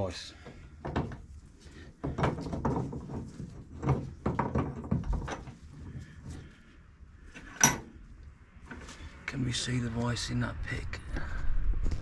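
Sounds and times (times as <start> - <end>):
metal parts knocking and clunking: 0.5 - 6.5, 7.3 - 8.0.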